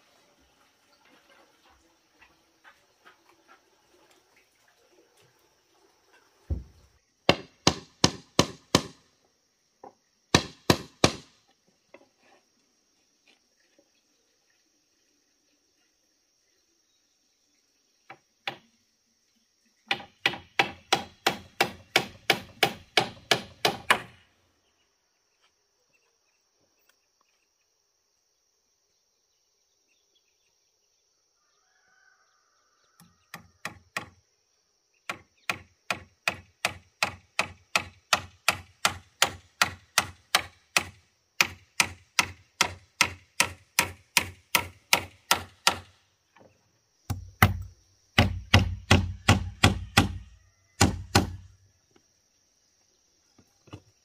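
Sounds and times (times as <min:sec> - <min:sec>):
hammer driving nails into wood: 0:07.3 - 0:09.0, 0:10.3 - 0:11.4, 0:19.9 - 0:24.2, 0:33.3 - 0:34.2, 0:35.1 - 0:46.0, 0:47.1 - 0:50.2, 0:50.8 - 0:51.5.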